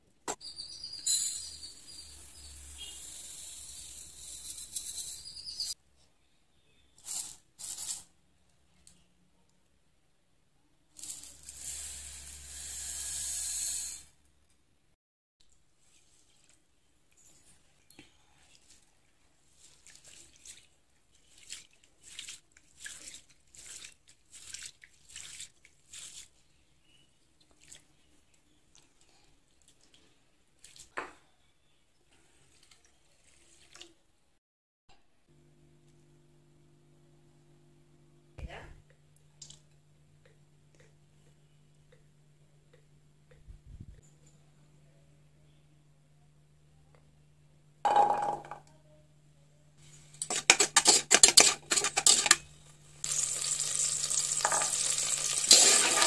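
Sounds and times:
hand swishing rice in water: 0:18.5 - 0:26.4
rice pouring into a bowl: 0:53.0 - 0:56.0.

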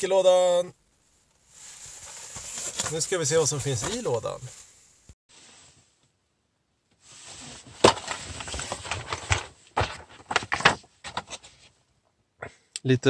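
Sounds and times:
cardboard scraping and rustling: 0:01.6 - 0:04.5, 0:07.1 - 0:11.7.

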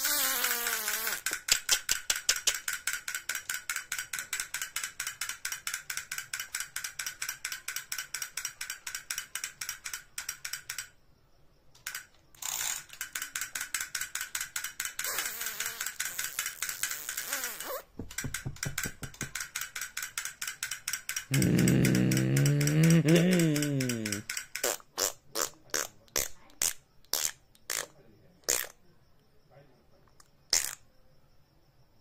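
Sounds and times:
rapid mechanical clicking: 0:01.4 - 0:11.0, 0:11.7 - 0:15.1, 0:18.1 - 0:21.4.

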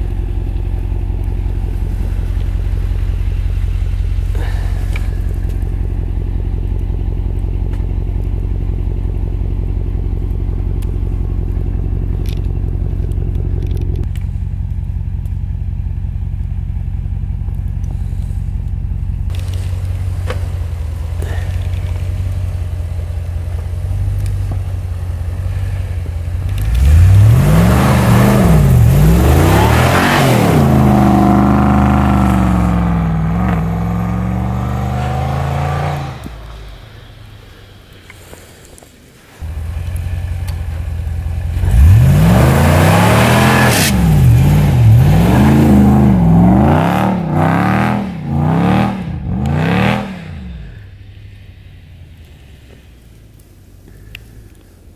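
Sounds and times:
engine idling: 0:00.0 - 0:46.7, 0:49.0 - 0:54.9
engine revving: 0:19.3 - 0:37.1, 0:39.4 - 0:51.4.

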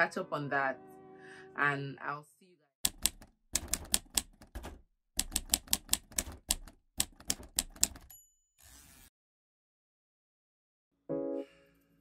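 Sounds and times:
typewriter key clacks: 0:02.9 - 0:08.1.

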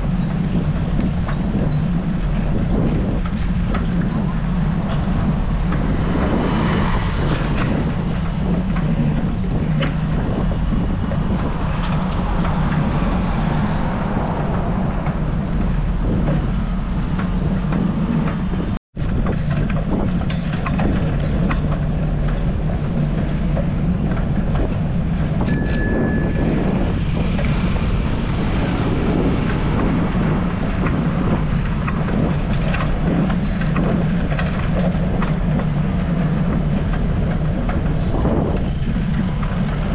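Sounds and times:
passing traffic: 0:00.0 - 0:39.9
wind buffeting microphone: 0:00.0 - 0:39.9
bell-like ding: 0:07.3 - 0:08.2, 0:25.5 - 0:27.0.

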